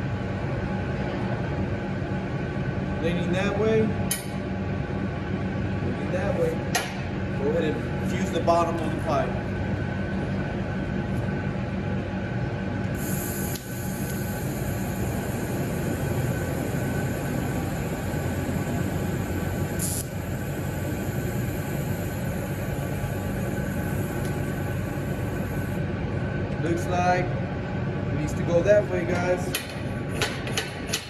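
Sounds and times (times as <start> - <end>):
shop machinery rumble and hum: 0.0 - 31.0
welding arc hissing: 12.9 - 25.8.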